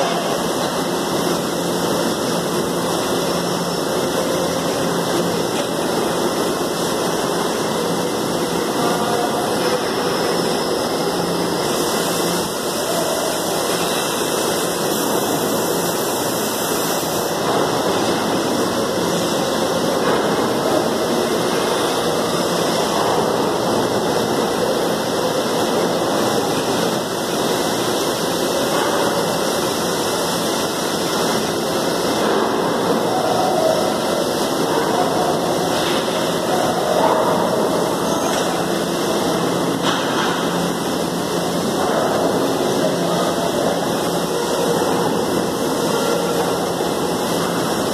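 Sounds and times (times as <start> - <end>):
steady equipment noise: 0.0 - 47.9.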